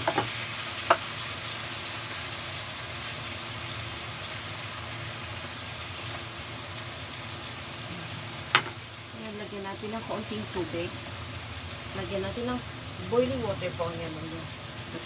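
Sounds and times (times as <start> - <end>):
utensil knocking pan: 0.0 - 1.1
food sizzling in a pan: 0.0 - 15.0.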